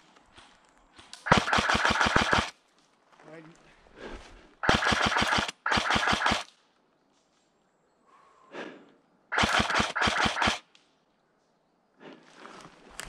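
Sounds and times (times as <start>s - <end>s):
airsoft gun bursts: 1.2s - 2.6s, 4.6s - 6.5s, 9.3s - 10.7s.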